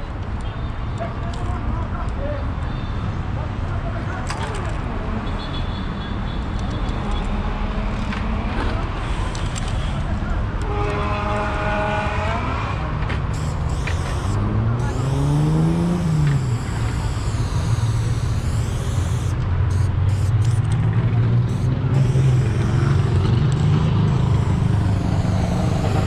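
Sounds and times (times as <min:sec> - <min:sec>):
road traffic rumble: 0:00.0 - 0:26.0
engine revving: 0:11.6 - 0:26.0.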